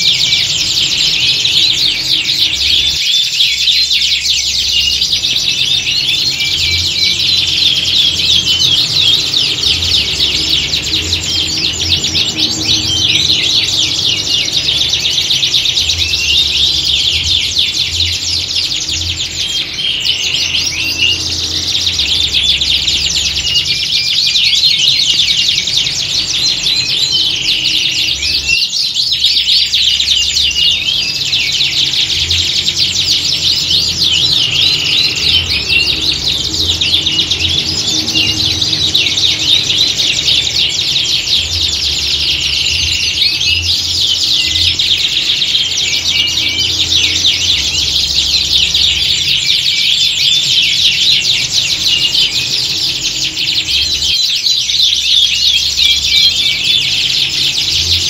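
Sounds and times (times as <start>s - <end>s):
canaries singing: 0.0s - 58.0s.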